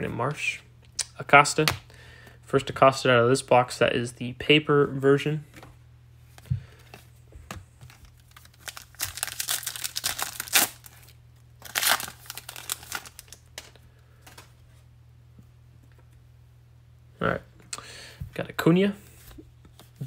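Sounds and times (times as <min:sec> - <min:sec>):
wrapper tearing and crinkling: 0:07.9 - 0:14.5.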